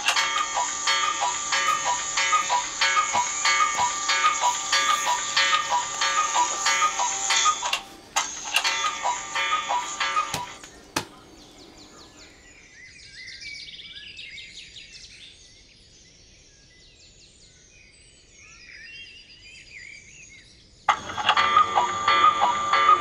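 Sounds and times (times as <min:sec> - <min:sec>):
smartphone alarm ringtone: 0:00.0 - 0:10.6, 0:20.9 - 0:23.0
faint birds chirping: 0:00.6 - 0:14.5.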